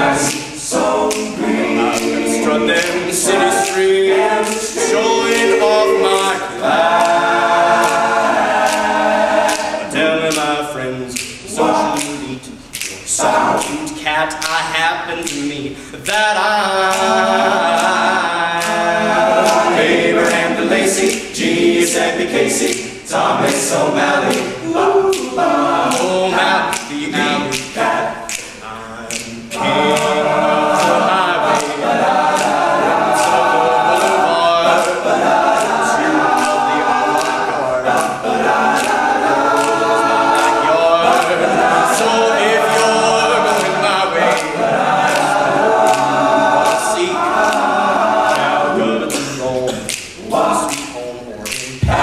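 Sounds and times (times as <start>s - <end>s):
male a cappella group singing: 0.0s - 52.0s
finger snaps: 0.2s - 5.5s, 7.0s - 10.5s, 11.1s - 16.3s, 21.0s - 26.1s, 26.7s - 30.1s, 32.4s - 32.6s, 38.0s - 41.3s, 49.1s - 52.0s.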